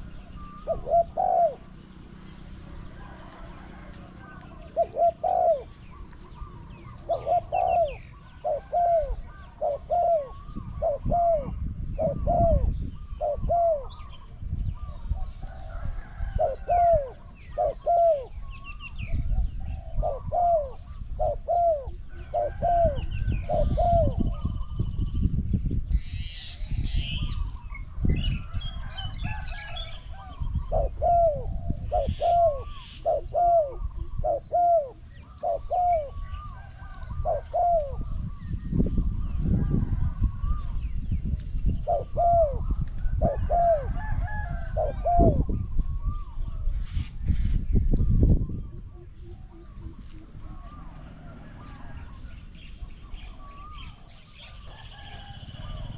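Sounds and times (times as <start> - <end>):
doves cooing: 0.0 - 24.8, 26.2 - 47.6, 48.2 - 55.9
small birds chirping: 0.0 - 28.8
wind rumble on microphone: 0.0 - 55.9.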